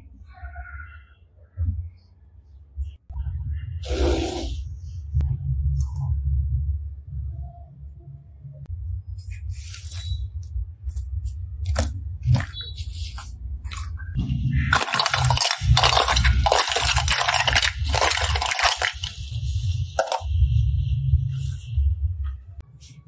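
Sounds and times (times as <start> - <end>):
plastic capsules clattering: 14.7 - 20.3.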